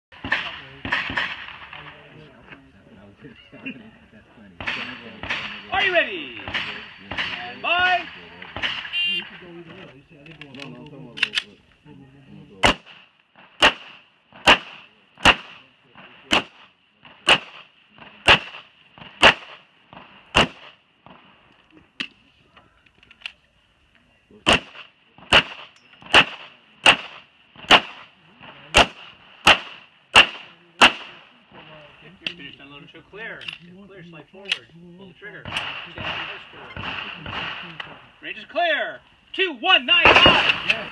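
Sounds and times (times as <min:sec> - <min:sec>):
pistol shots: 0:00.2 - 0:02.1, 0:04.6 - 0:09.2, 0:12.6 - 0:21.3, 0:24.4 - 0:31.4, 0:35.4 - 0:38.1, 0:40.0 - 0:40.9.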